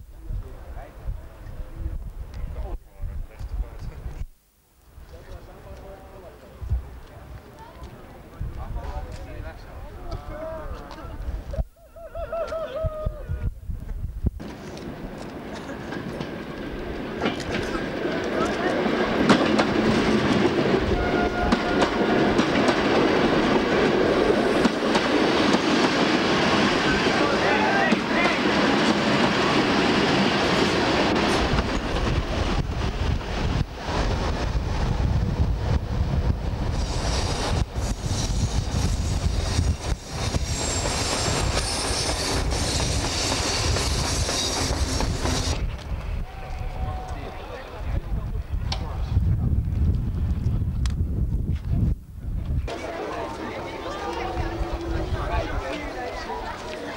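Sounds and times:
wheels clicking over rail joints: 14.4s - 20.5s
diesel train rolling past: 14.4s - 47.5s
high hiss: 36.6s - 45.7s.

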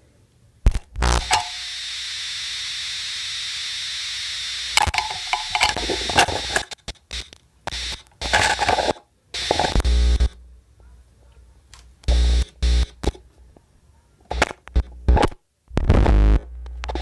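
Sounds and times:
steady hiss: 0.0s - 10.8s
stuttering clicks and static bursts: 0.6s - 10.4s, 12.0s - 13.2s, 14.3s - 17.0s
experimental noise music: 0.6s - 10.7s, 12.0s - 13.2s, 14.3s - 17.0s.

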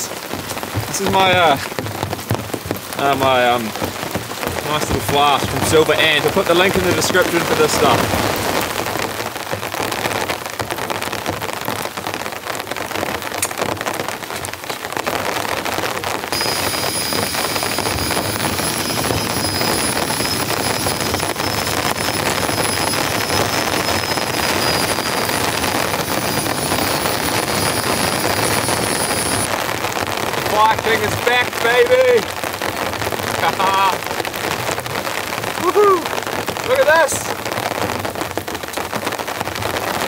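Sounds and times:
heavy rain on a tarp: 0.0s - 40.0s.

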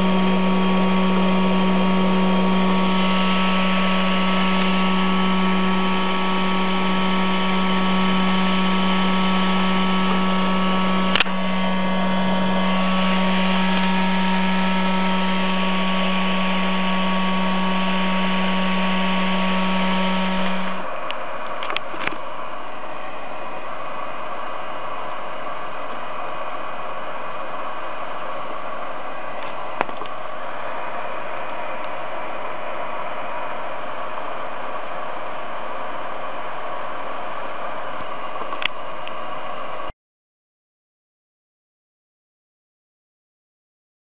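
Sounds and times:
electrical hum: 0.0s - 34.5s
clicks: 11.0s - 11.4s.

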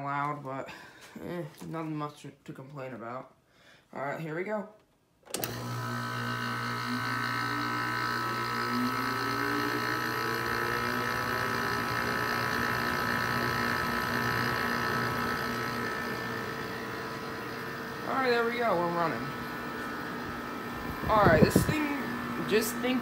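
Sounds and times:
air conditioner humming: 16.5s - 23.0s.

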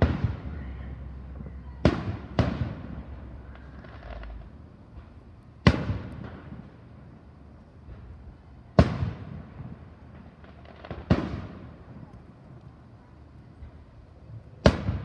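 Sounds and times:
firework shells bursting: 1.8s - 6.9s.

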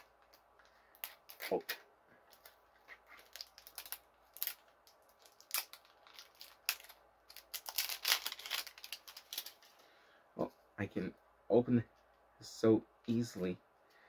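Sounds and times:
plastic wrapper crinkling and tearing: 2.3s - 9.8s.

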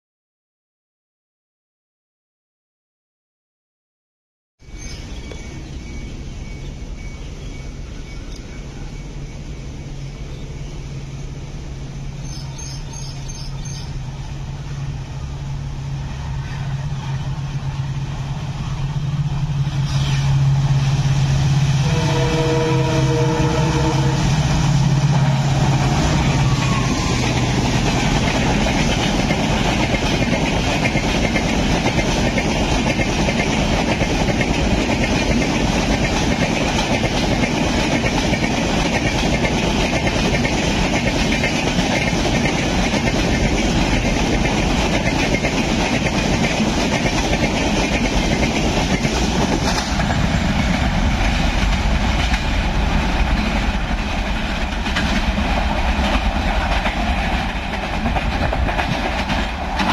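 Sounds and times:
diesel locomotive engine drone: 4.6s - 59.9s
train coaches rumbling past: 4.6s - 59.9s
multi-note train horn: 21.6s - 27.5s.

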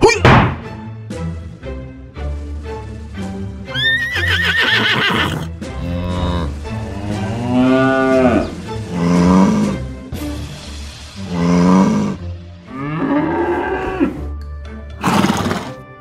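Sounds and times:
horse whinnying: 3.7s - 6.6s, 15.0s - 15.8s
cattle mooing: 5.7s - 9.9s, 11.3s - 14.3s.

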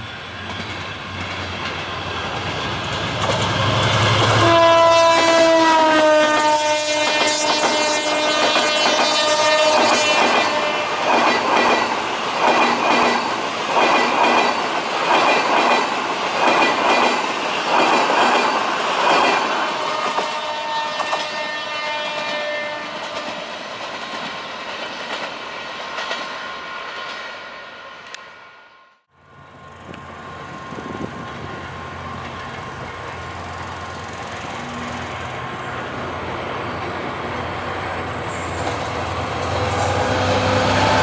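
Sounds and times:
train wheels clattering over rail joints: 0.4s - 4.5s, 7.0s - 20.4s.

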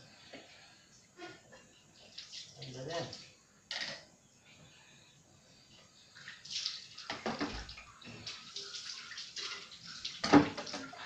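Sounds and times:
water splashing in sink: 6.2s - 11.0s.

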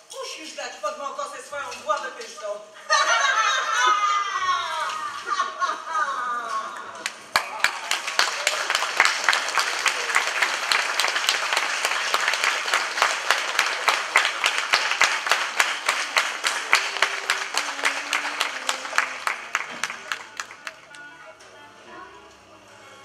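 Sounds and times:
audience applause: 6.8s - 21.1s.

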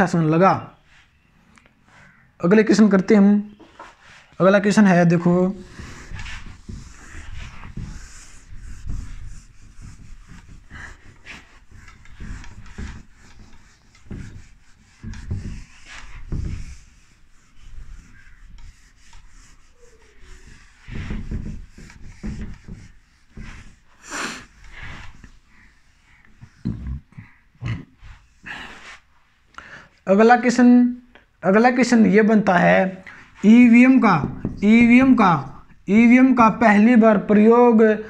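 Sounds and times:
handwriting scratching on a surface: 5.4s - 27.0s, 33.4s - 35.8s.

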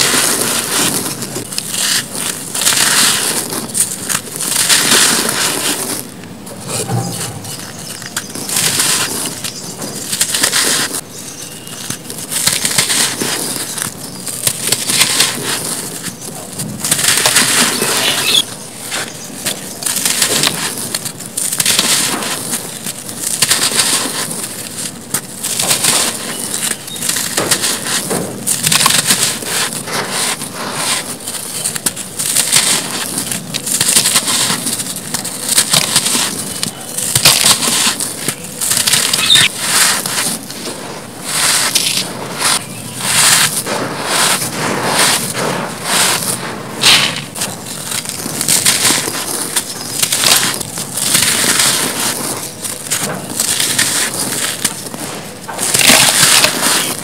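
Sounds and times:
crumbs and powder pouring: 0.0s - 6.2s, 7.2s - 57.0s
cement blocks crunching: 0.0s - 57.0s.

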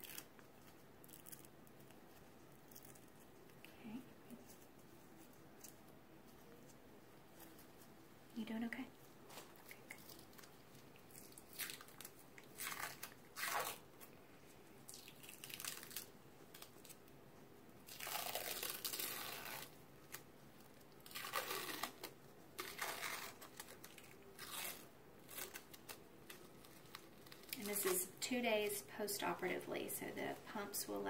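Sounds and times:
adhesive tape peeling off skin: 0.0s - 3.5s, 9.3s - 14.1s, 14.9s - 17.0s, 17.9s - 28.1s.

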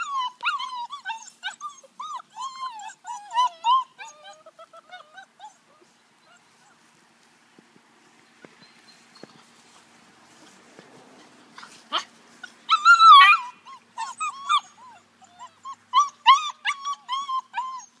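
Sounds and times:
puppies crying: 0.0s - 6.8s, 11.2s - 18.0s.

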